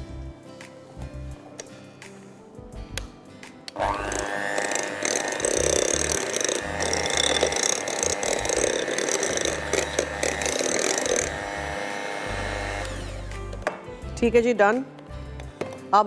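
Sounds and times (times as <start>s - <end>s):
electric hand mixer motor: 3.8s - 13.6s
beaters churning thick batter: 4.0s - 13.2s.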